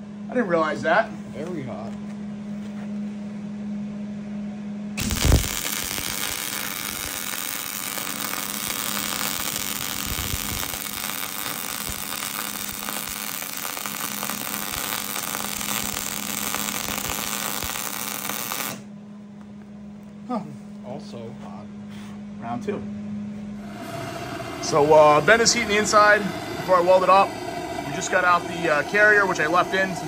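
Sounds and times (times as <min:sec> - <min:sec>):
welding arc crackling: 0:05.0 - 0:18.9, 0:23.6 - 0:29.9.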